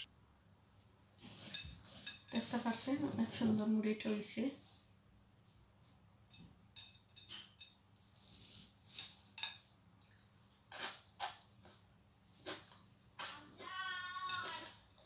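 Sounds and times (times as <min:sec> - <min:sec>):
puffed rice rustling in glass bowl: 0:01.1 - 0:05.0, 0:07.3 - 0:11.3.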